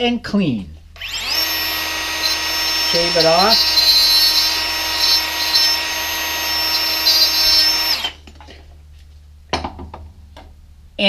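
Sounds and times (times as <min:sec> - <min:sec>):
angle grinder whining: 0:01.0 - 0:08.2.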